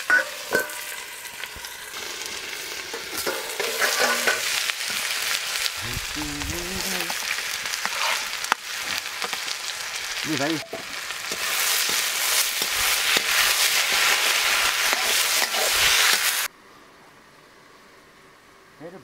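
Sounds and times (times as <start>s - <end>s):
vegetables sizzling in hot oil: 0.0s - 16.5s
metal spatula scraping wok: 2.9s - 5.0s, 6.8s - 9.3s, 10.6s - 16.5s.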